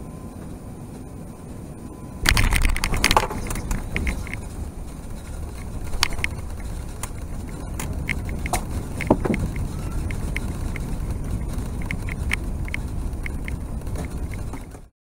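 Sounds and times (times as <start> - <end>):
aircraft cabin low rumble: 0.0 - 14.9
light rattles and clicks: 2.2 - 14.9.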